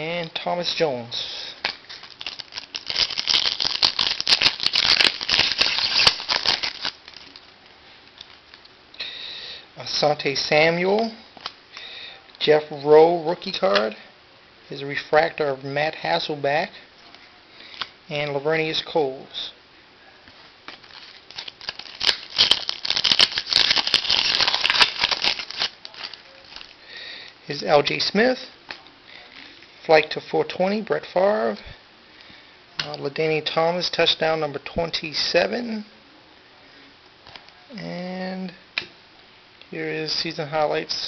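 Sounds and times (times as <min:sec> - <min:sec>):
foil wrapper tearing and crinkling: 0:01.6 - 0:07.4, 0:20.7 - 0:26.8.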